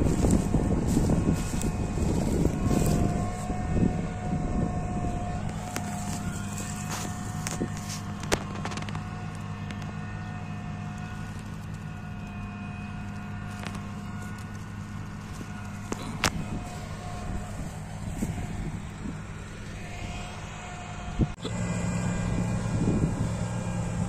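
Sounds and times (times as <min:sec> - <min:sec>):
wind on microphone: 0:00.0 - 0:09.0, 0:16.0 - 0:20.4, 0:22.0 - 0:24.0
combine harvester engine hum: 0:00.0 - 0:24.0
high whine: 0:00.0 - 0:24.0.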